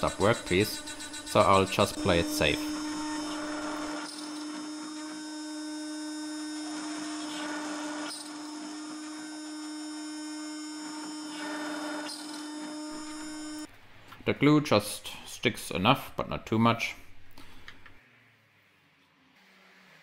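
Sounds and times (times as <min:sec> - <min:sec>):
milling aluminium cutting noise: 0:00.0 - 0:13.7
spindle high whine: 0:00.0 - 0:13.7.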